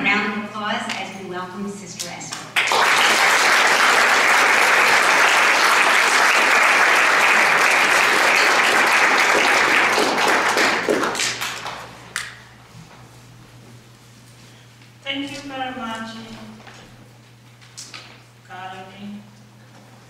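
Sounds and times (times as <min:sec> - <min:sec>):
audience applauding: 0:02.6 - 0:12.3.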